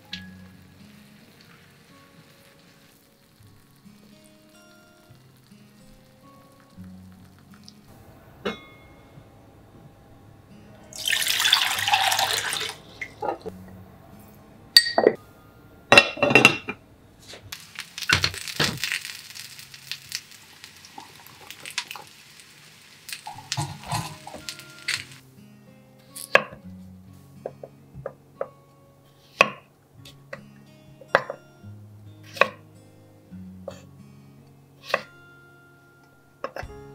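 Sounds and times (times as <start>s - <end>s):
gas burner hiss: 0.0s - 13.2s, 17.2s - 25.2s
water running into saucepan: 10.9s - 13.5s, 17.6s - 25.2s.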